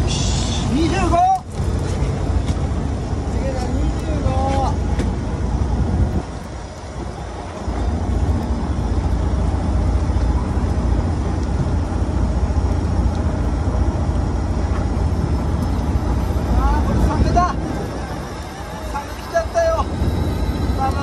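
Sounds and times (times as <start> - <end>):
noisy hiss: 0.0 - 3.5
boat engine rumbling: 0.0 - 21.0.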